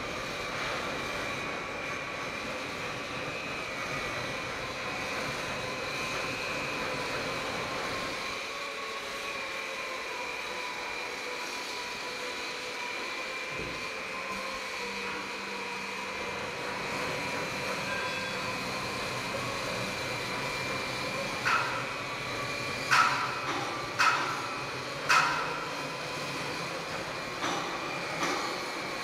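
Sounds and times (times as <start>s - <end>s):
hydraulic press whining hum: 0.0s - 29.0s.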